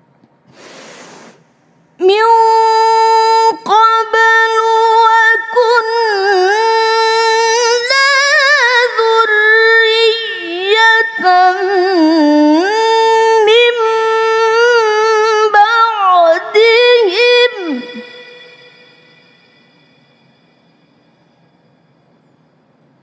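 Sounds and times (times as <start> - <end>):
woman reciting melodically: 2.0 - 19.7.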